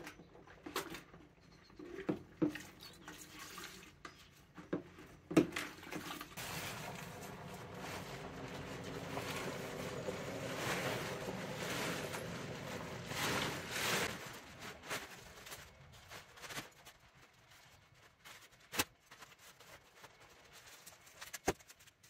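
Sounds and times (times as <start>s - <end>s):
tarp rustling and crackling: 6.4s - 22.0s.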